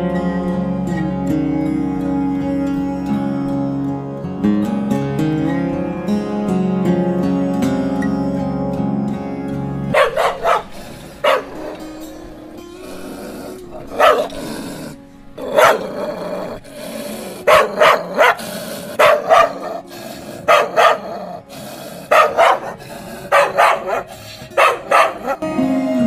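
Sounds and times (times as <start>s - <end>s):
angry dog barking: 9.9s - 25.4s.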